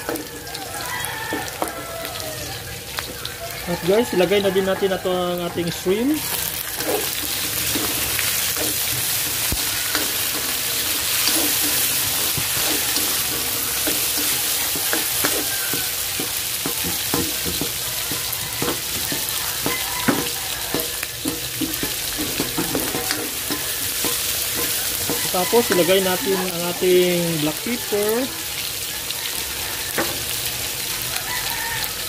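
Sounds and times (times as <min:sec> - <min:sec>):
shrimp sizzling in hot oil: 0:00.0 - 0:32.0
utensil scraping a pan: 0:04.7 - 0:26.7.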